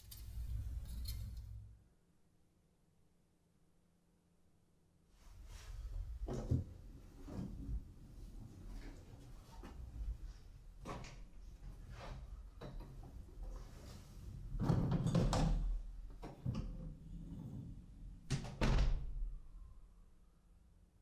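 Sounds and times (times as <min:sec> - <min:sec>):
door shutting with knocks: 0:18.3 - 0:19.1.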